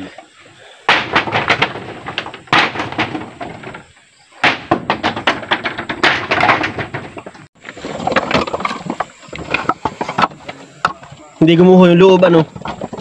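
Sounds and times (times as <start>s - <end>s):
hard objects clattering: 0.8s - 13.0s.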